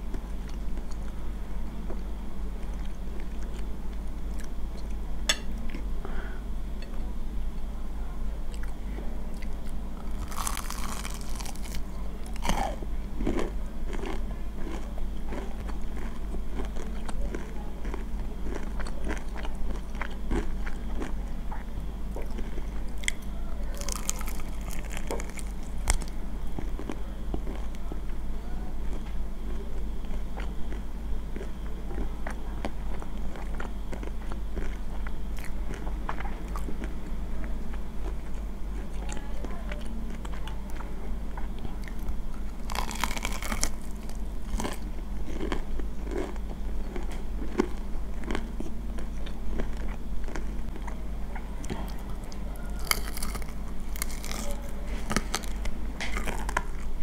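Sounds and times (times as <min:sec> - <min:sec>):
close chewing and biting: 0:08.5 - 0:27.8, 0:28.9 - 0:37.0, 0:39.8 - 0:57.0
crisp crunching of fried chicken: 0:09.4 - 0:27.9, 0:41.6 - 0:51.0, 0:51.6 - 0:57.0.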